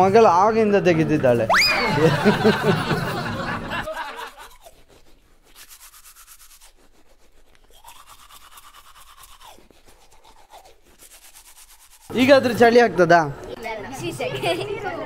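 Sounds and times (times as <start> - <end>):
hair cutting scraping: 3.9 - 12.6
voices: 12.1 - 15.0.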